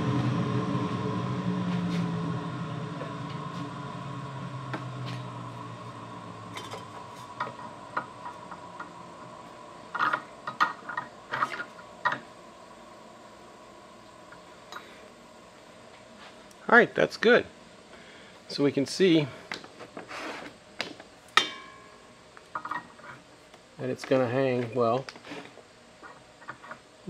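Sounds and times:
lathe motor humming: 0.0s - 13.8s.

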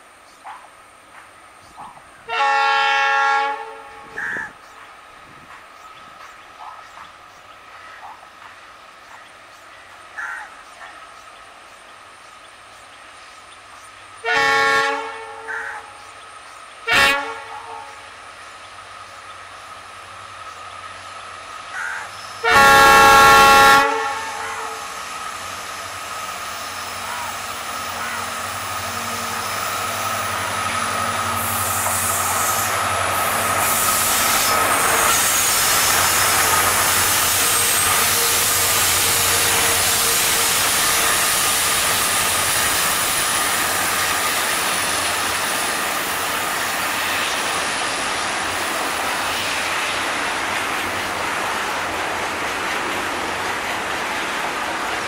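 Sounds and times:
locomotive horn: 2.2s - 4.4s, 14.2s - 15.9s, 16.8s - 18.1s, 22.4s - 25.0s, 26.8s - 33.8s, 34.5s - 42.5s
train wheels clickety-clack: 4.1s - 9.7s, 28.8s - 55.0s
locomotive engine: 18.1s - 55.0s.

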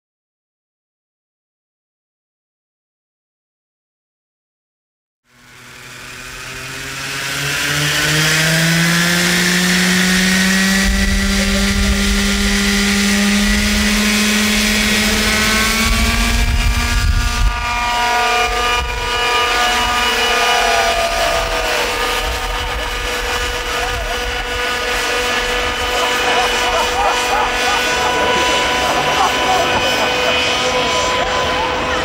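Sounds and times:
model helicopter engine: 5.3s - 32.0s
gusty low rumble: 14.8s - 20.3s.

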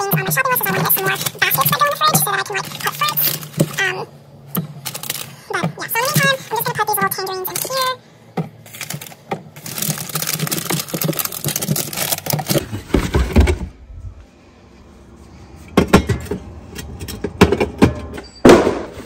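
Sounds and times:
tangerines rustling into plastic drawer: 4.8s - 5.4s, 8.6s - 13.6s.

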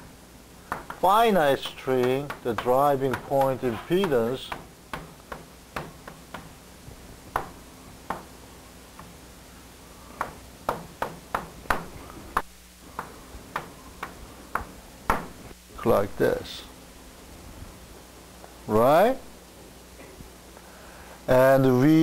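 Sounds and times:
chalk tapping on blackboard: 0.7s - 6.5s, 7.3s - 8.3s, 10.2s - 15.3s.

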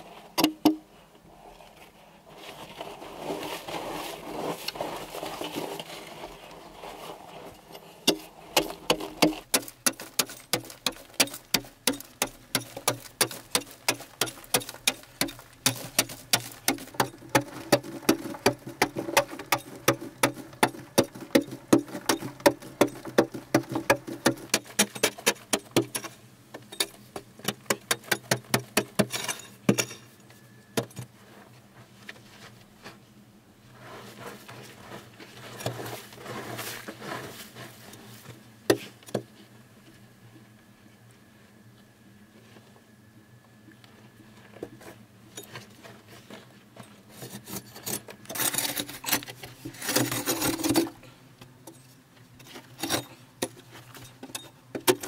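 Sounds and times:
digging tool striking earth: 0.4s - 0.8s, 8.0s - 30.1s, 47.2s - 51.0s.

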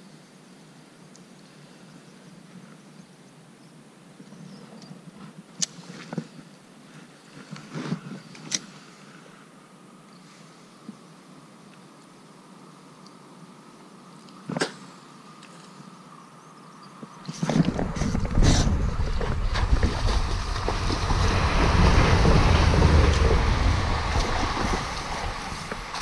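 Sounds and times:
camera jostling buffeting: 17.3s - 26.0s
fish splashing and thrashing: 17.5s - 26.0s.

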